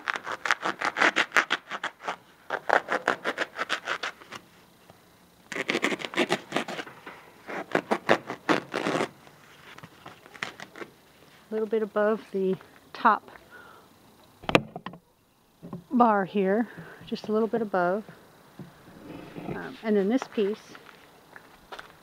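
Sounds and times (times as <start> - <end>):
saw scraping through foam: 18.9 - 19.8.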